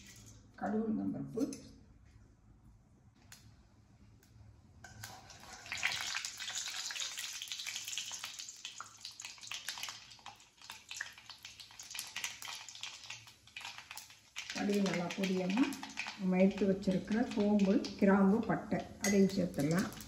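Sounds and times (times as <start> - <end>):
seeds sizzling and crackling in oil: 4.8 - 20.0.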